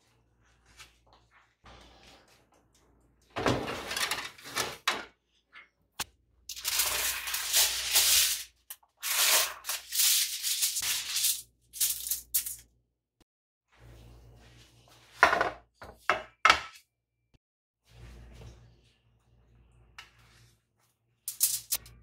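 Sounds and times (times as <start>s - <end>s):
aluminium foil crackling: 6.5s - 11.4s.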